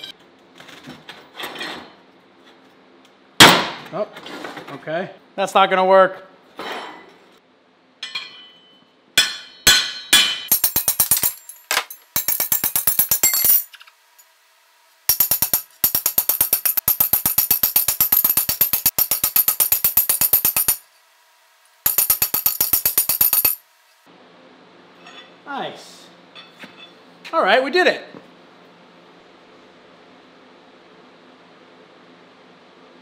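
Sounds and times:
hammer striking steel on anvil: 8.0s - 13.6s, 15.1s - 20.8s, 21.9s - 23.6s, 25.0s - 25.3s, 26.3s - 27.0s.

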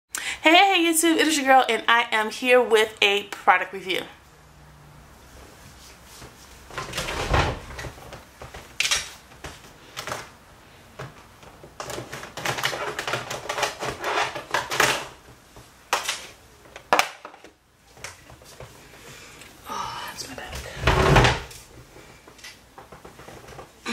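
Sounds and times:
plastic cases clattering: 11.0s - 15.3s.

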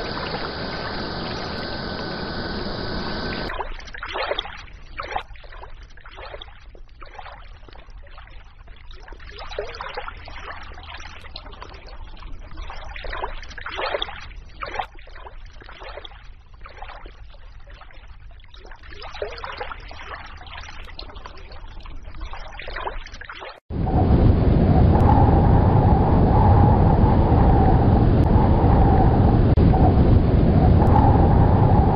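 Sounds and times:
steady rushing noise with hum: 0.0s - 3.5s, 23.7s - 31.9s
water trickling and babbling: 0.0s - 23.6s.

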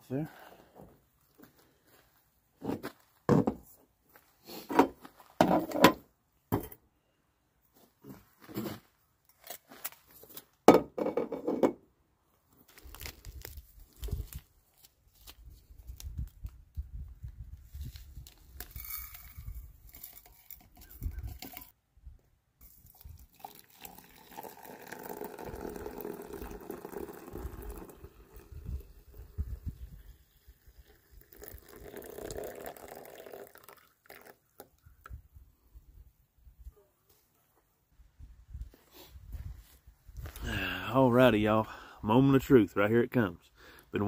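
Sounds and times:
liquid pouring: 22.6s - 34.6s.

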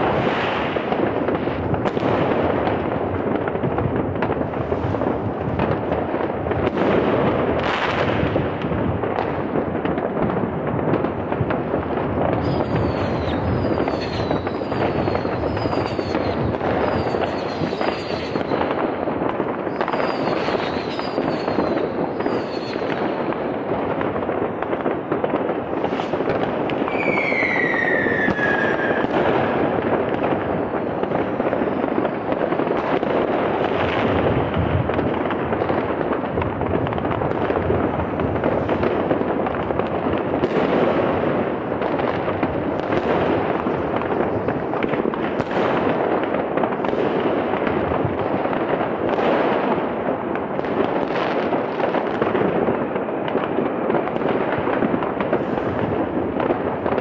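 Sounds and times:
fireworks crackling and banging: 0.0s - 57.0s
falling firework whistles: 12.3s - 18.8s, 19.6s - 23.2s, 25.8s - 29.6s.

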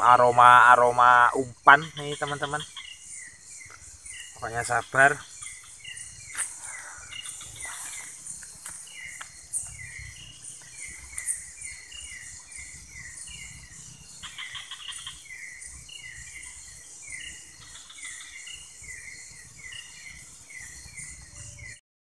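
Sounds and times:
cricket chirping: 0.0s - 21.8s
insect rattling trill: 0.0s - 21.8s
insects buzzing: 0.0s - 21.8s.

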